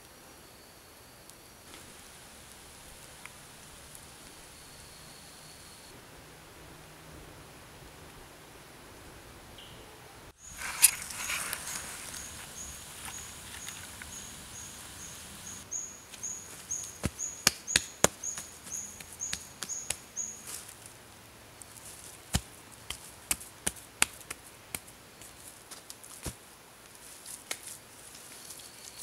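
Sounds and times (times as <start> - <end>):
sharp cracks and knocks: 17.0 - 20.0.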